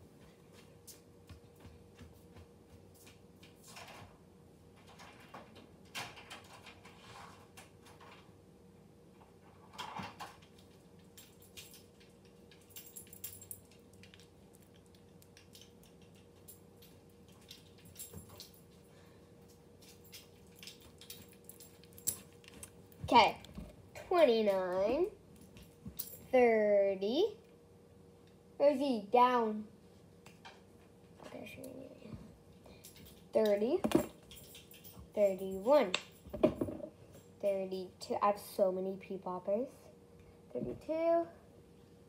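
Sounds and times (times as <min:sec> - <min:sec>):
faint steady hum: 0:00.0 - 0:42.0
distant household knocks and clatter: 0:36.2 - 0:37.0.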